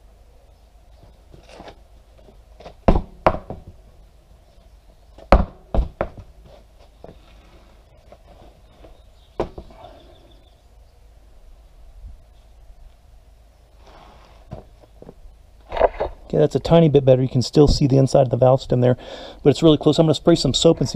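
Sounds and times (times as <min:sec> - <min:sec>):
tire thudding on concrete: 0:01.3 - 0:03.9, 0:05.2 - 0:07.3, 0:09.3 - 0:09.8, 0:14.4 - 0:16.2.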